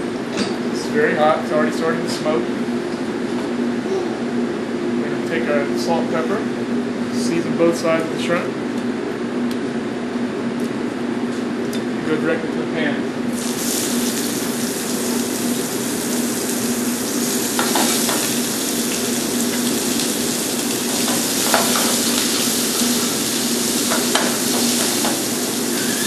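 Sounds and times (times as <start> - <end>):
shrimp sizzling in oil: 13.4 - 26.0.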